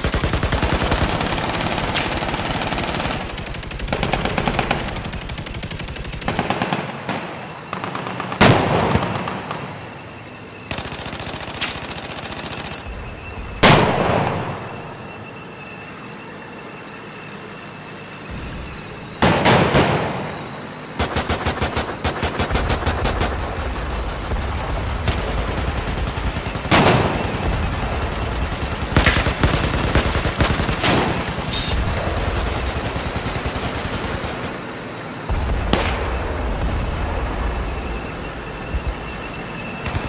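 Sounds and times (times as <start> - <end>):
automatic gunfire in rapid bursts: 0.0 - 7.1, 10.7 - 12.9, 21.0 - 34.7.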